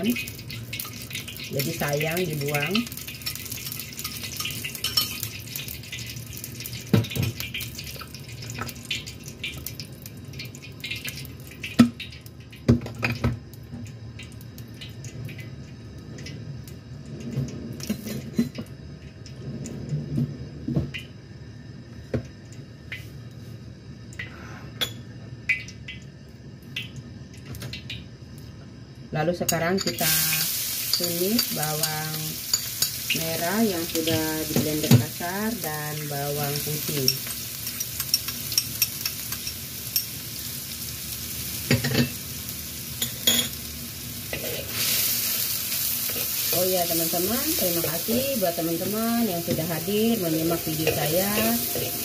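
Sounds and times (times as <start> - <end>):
shallots and garlic sizzling in oil: 0.0 - 17.0, 27.6 - 52.0
dishes clinking: 43.0 - 43.6.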